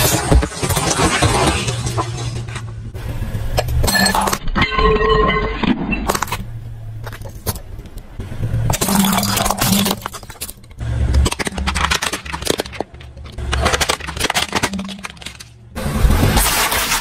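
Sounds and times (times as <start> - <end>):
plastic toys cracking and snapping: 8.7 - 15.6.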